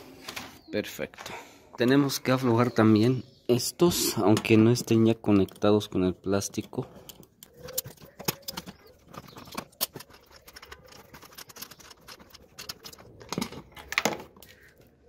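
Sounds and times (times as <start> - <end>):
metal screws clicking: 6.5 - 14.1.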